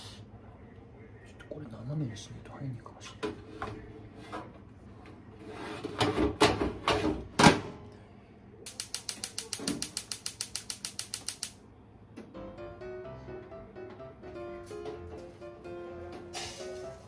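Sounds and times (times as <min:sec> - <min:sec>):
gas igniter clicking rapidly: 0:08.7 - 0:11.6.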